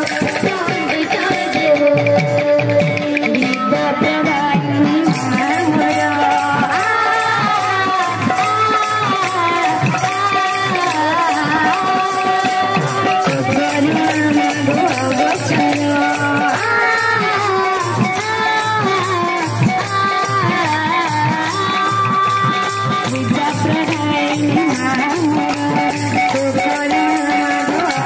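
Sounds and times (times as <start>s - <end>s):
rattling hand percussion: 0.0s - 28.0s
steady drum beat: 0.0s - 28.0s.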